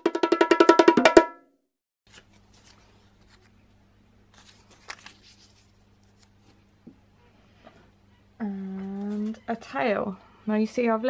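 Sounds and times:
paper crinkles: 2.1 - 6.7
paper rustling and tapping: 4.4 - 6.6.

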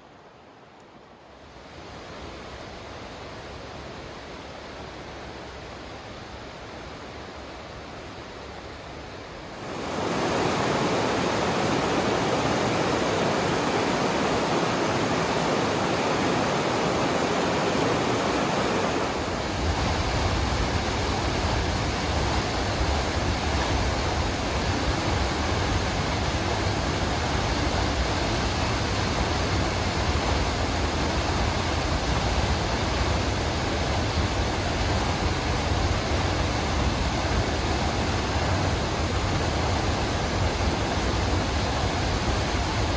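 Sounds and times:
deep waterfall rumble: 1.4 - 42.9
waterfall rushing: 9.4 - 42.9.

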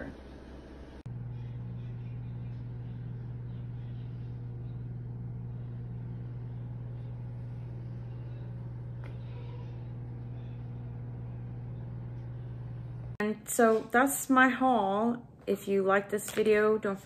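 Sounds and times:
low-pitched hum: 0.0 - 13.4.

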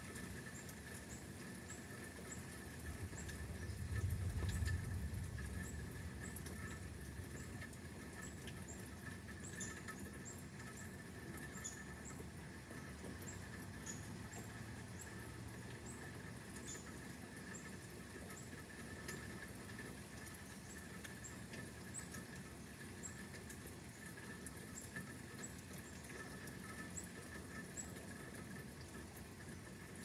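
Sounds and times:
low steady rush: 2.9 - 8.2.

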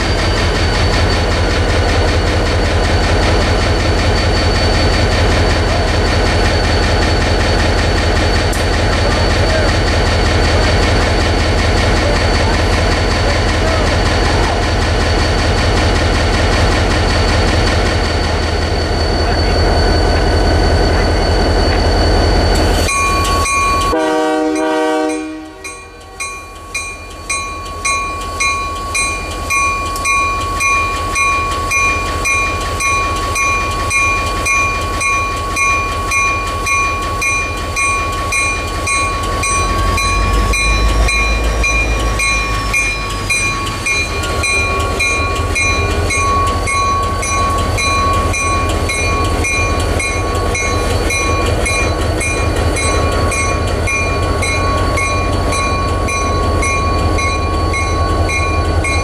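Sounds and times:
diesel locomotive engine running: 0.0 - 59.0
bell ringing: 22.7 - 24.0, 25.1 - 59.0
locomotive horn blast: 23.9 - 26.0.

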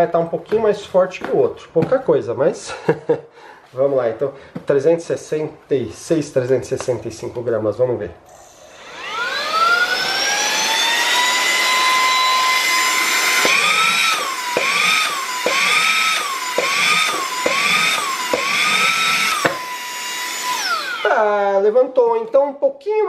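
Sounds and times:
mini vacuum motor whine: 8.3 - 21.3.

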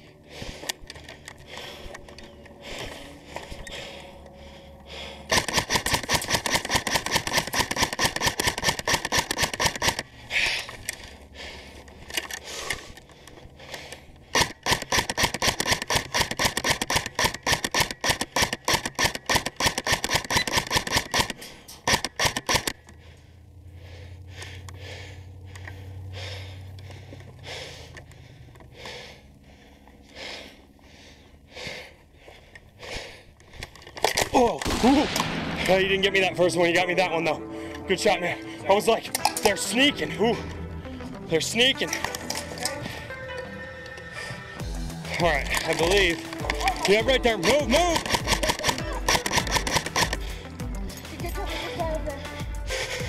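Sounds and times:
scattered clicks: 0.4 - 4.5, 5.3 - 23.0, 39.0 - 40.6, 41.7 - 44.0, 44.6 - 51.3
airsoft rifle rapid firing: 5.3 - 10.1, 14.3 - 22.8, 34.1 - 36.3, 45.4 - 50.5.

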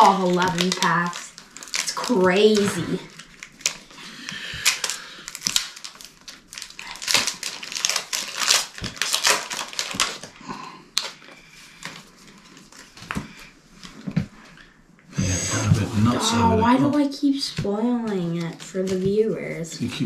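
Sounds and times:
foil pack crinkling: 0.0 - 13.3.

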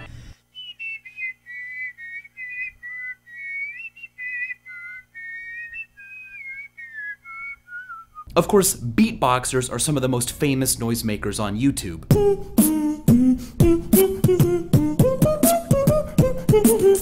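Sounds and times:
person double whistling melody: 0.5 - 8.3, 12.1 - 17.0.

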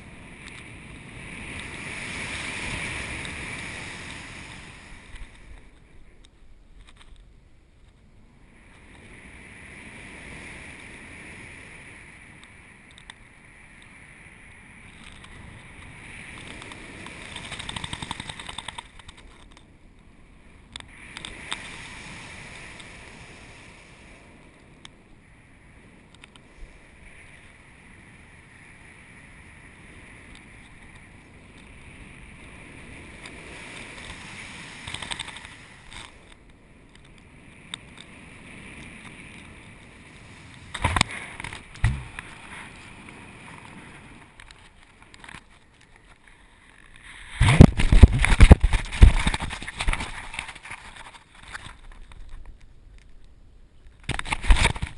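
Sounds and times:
air rushing over microphone: 40.7 - 44.7, 46.5 - 50.9.

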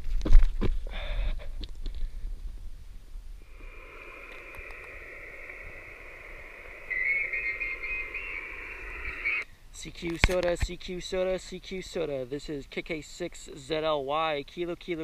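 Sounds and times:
radio speaker hissing: 3.4 - 12.1
faint warbling radio signal: 3.5 - 9.4.

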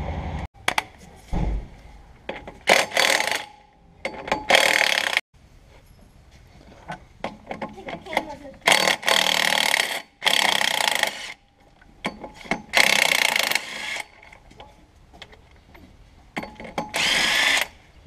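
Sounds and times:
cordless power tool bursts: 16.9 - 17.8.

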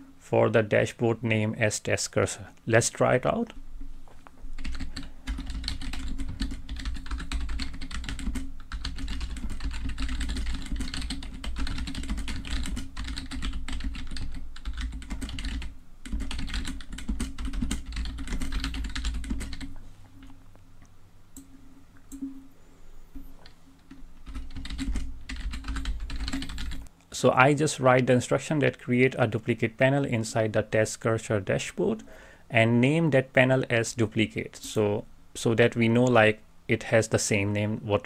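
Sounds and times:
keyboard typing clicks: 23.2 - 26.9.

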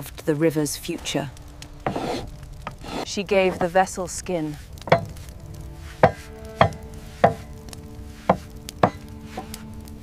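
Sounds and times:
hammer striking metal on anvil: 4.9 - 5.1, 6.0 - 7.4.

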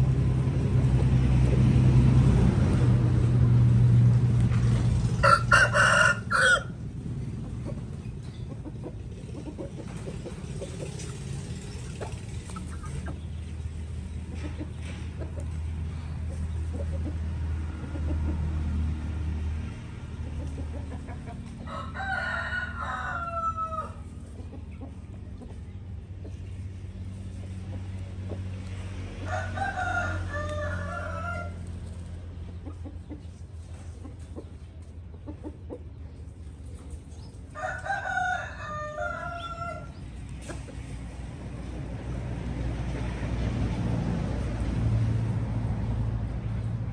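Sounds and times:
rooster crowing: 5.2 - 6.8, 21.6 - 24.1, 29.2 - 31.7, 37.5 - 40.0.

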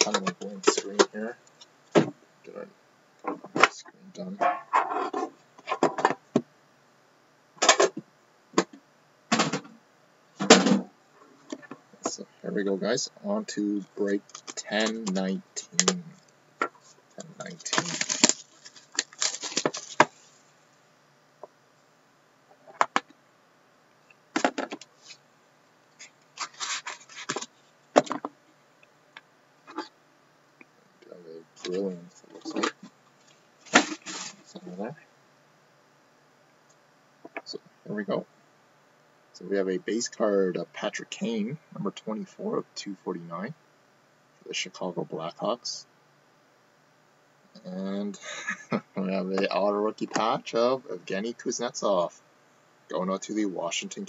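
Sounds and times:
box scraping open: 26.4 - 27.4.

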